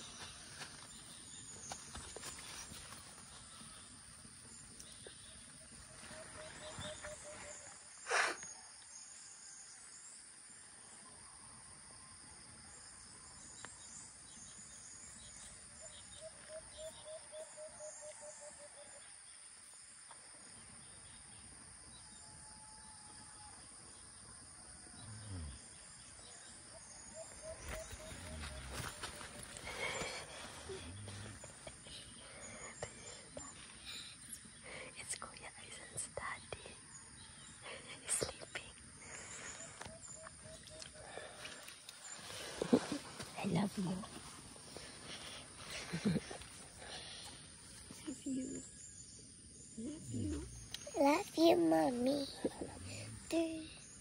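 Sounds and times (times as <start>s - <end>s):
insect chirring: 25.0s - 54.0s.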